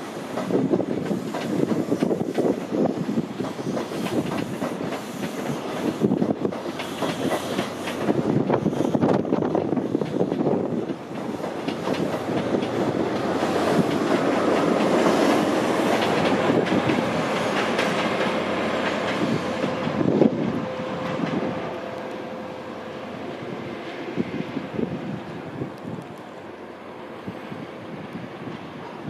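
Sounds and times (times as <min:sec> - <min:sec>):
train wheels clattering over rail joints: 0:00.0 - 0:21.6
rush of air from passing train: 0:00.0 - 0:29.0.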